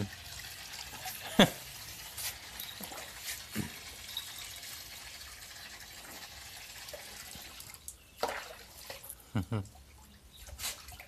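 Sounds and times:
water splashing in plastic tub: 0.0s - 11.0s.

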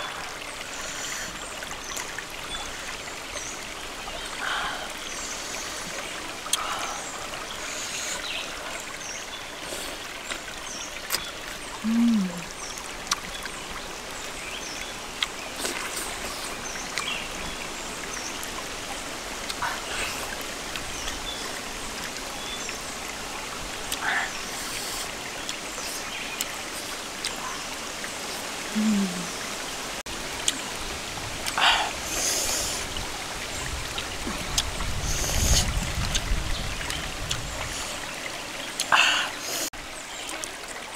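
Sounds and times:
stream trickling over rocks: 0.0s - 40.9s
person humming: 11.8s - 12.5s, 28.7s - 29.4s.

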